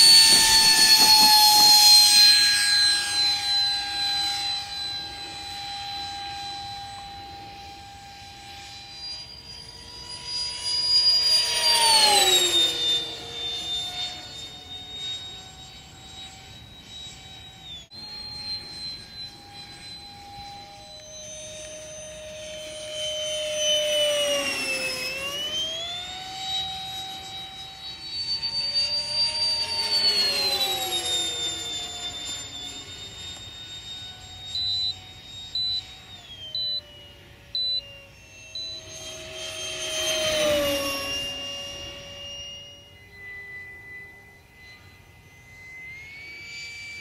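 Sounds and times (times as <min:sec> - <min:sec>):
electric ducted fan whining: 0:00.0 - 0:47.0
short high beeps: 0:34.4 - 0:42.8.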